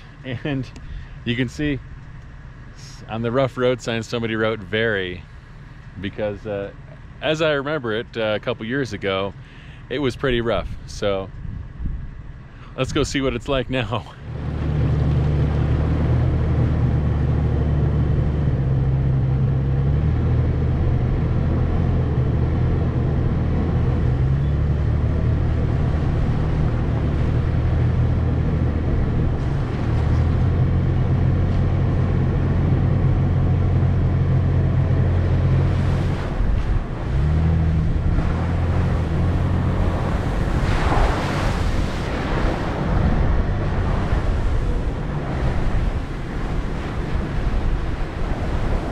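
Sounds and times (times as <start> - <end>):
car engine running at low revs: 0.0 - 48.9
rushing noise: 19.8 - 48.9.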